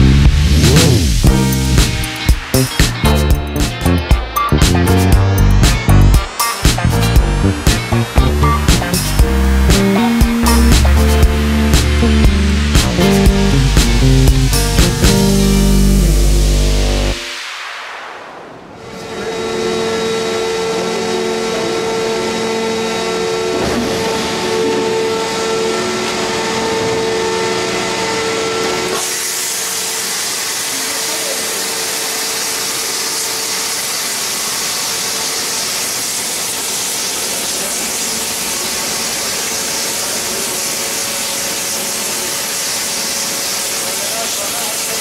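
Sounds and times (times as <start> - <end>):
machine hum: 0.0 - 28.9.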